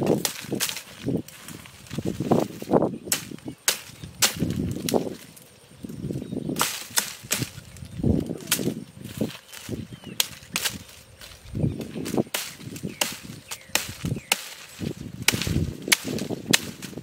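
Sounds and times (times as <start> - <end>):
sharp cracks: 3.1 - 5.5, 6.6 - 7.7, 9.6 - 11.0, 12.0 - 17.0.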